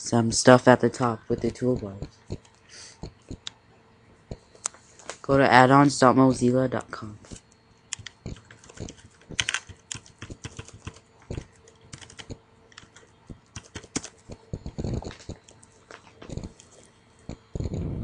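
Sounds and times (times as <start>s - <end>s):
keyboard key clicks: 7.9s - 15.4s.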